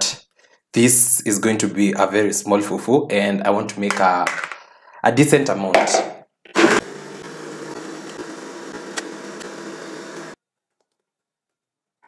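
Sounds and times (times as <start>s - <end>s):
blender motor running: 6.5s - 10.4s.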